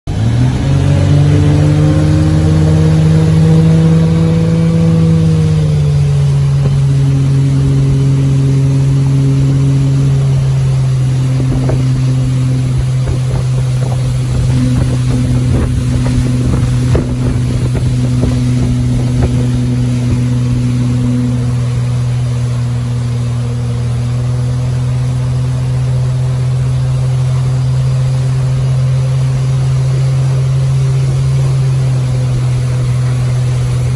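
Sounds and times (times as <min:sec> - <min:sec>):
boat engine pulling hard: 0:00.0 - 0:33.9
water noise: 0:00.1 - 0:33.9
wind noise: 0:00.2 - 0:23.2.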